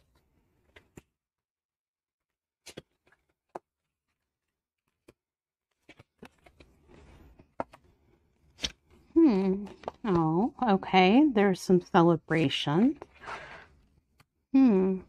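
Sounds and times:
cards clicking and tapping: 0:07.4 - 0:08.9.

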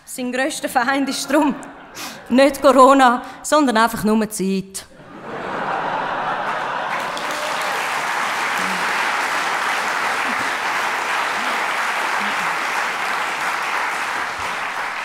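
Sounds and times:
audience applauding: 0:05.5 - 0:15.0.

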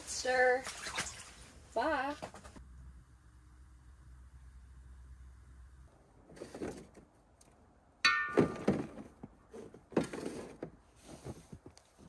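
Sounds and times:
sharp metallic clank: 0:08.0 - 0:08.9.

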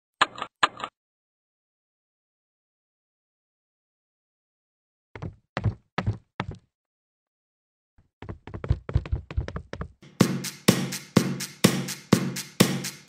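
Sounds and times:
footsteps on concrete stairs: 0:05.2 - 0:06.7, 0:08.2 - 0:10.0.

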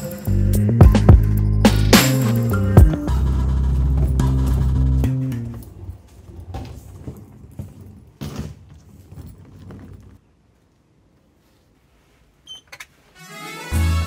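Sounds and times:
footsteps: 0:01.9 - 0:10.3.

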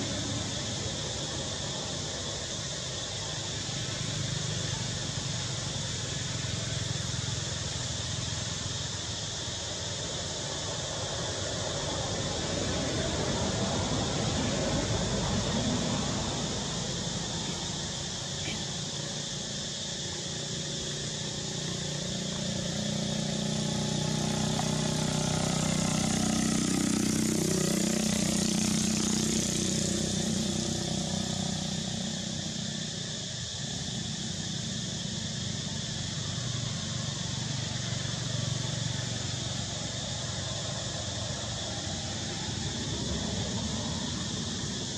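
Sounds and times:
steady background hiss: 0:00.0 - 0:44.9
vehicle engine passing: 0:20.3 - 0:33.1.

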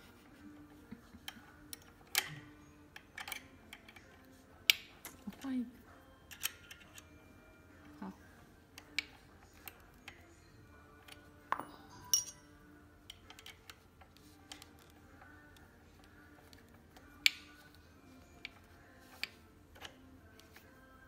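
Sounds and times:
hex keys clicking on metal: 0:01.2 - 0:05.6, 0:06.2 - 0:07.1.

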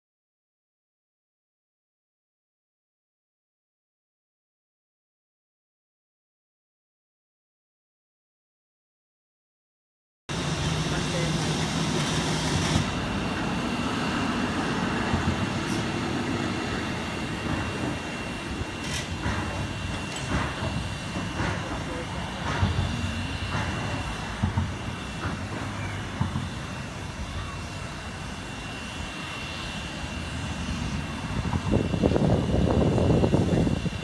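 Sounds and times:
rumble of steam: 0:10.3 - 0:34.0
steam exhaust chuffs: 0:10.3 - 0:34.0.

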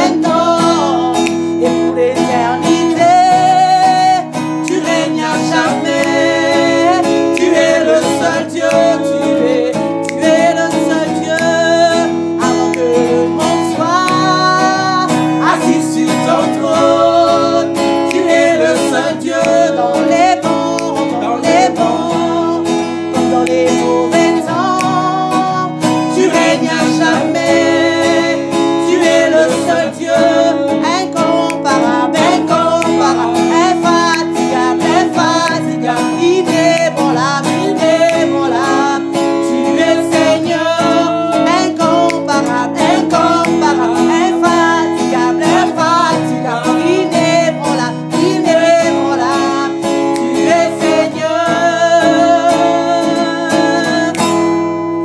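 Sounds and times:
strummed acoustic guitar: 0:00.0 - 0:55.0
woman singing: 0:23.3 - 0:54.2.

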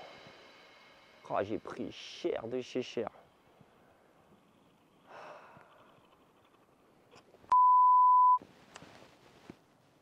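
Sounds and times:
faint breath: 0:03.1 - 0:04.3, 0:05.0 - 0:06.2
censor bleep: 0:07.5 - 0:08.4.

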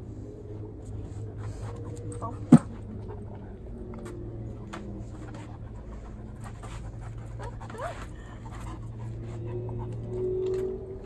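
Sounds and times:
steady low hum: 0:00.0 - 0:11.0
dog panting: 0:00.9 - 0:11.0
dog whining: 0:06.9 - 0:11.0.

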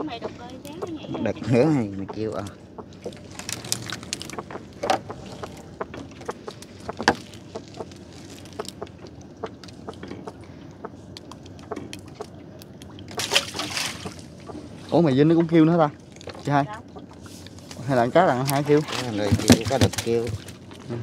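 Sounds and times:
wet net rustling: 0:03.1 - 0:05.8, 0:06.4 - 0:09.0, 0:13.2 - 0:14.3.

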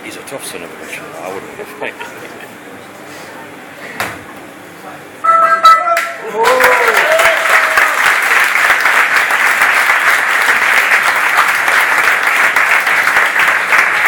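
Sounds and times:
crowd applauding: 0:05.9 - 0:14.0.

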